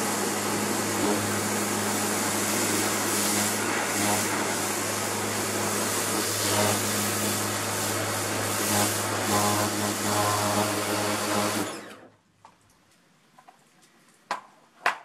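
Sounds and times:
water jet hissing: 0:00.0 - 0:11.9
pressure washer motor hum: 0:00.0 - 0:12.2.

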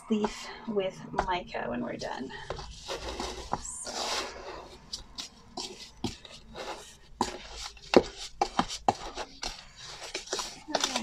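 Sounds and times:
metal spoon scraping plastic scoop: 0:02.4 - 0:11.0.

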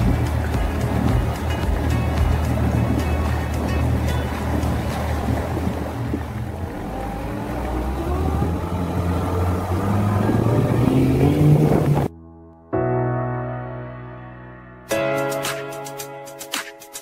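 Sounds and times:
outboard motor droning: 0:00.0 - 0:12.1
rush of boat wake: 0:00.0 - 0:12.1.

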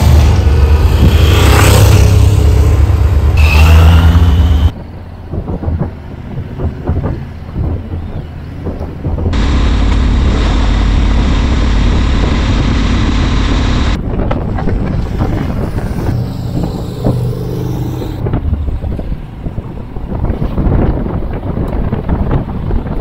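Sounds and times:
wind rushing over microphone: 0:00.0 - 0:03.4, 0:04.7 - 0:23.0
motorcycle engine: 0:00.0 - 0:04.7, 0:09.4 - 0:19.2.

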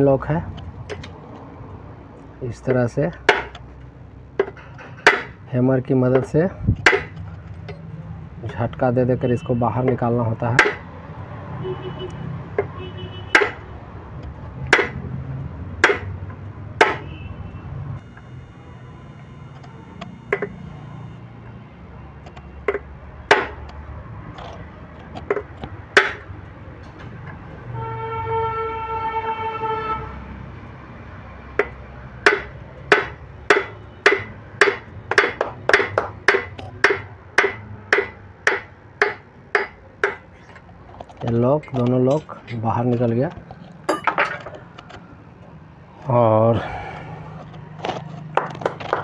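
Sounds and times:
hammer striking steel punch: 0:04.4 - 0:05.4, 0:06.8 - 0:07.2, 0:13.4 - 0:13.6, 0:14.7 - 0:15.0, 0:15.8 - 0:16.1, 0:16.8 - 0:17.1, 0:23.3 - 0:23.6, 0:31.6 - 0:40.2
horn sounding: 0:16.9 - 0:22.0, 0:27.7 - 0:30.2.

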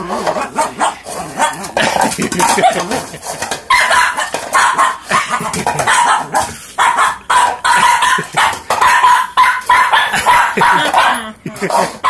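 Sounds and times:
small dog barking: 0:03.7 - 0:11.3.

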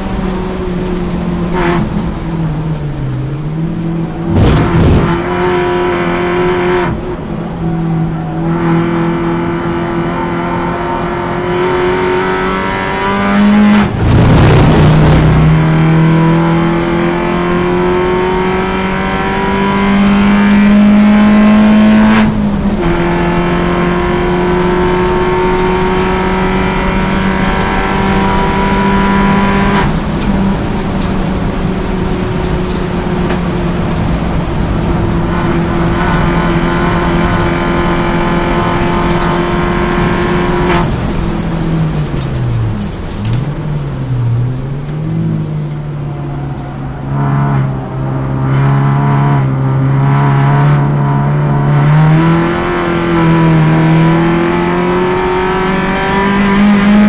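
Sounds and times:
race car engine accelerating: 0:00.0 - 0:57.0
loud rough noises: 0:04.3 - 0:05.3, 0:13.9 - 0:16.0.

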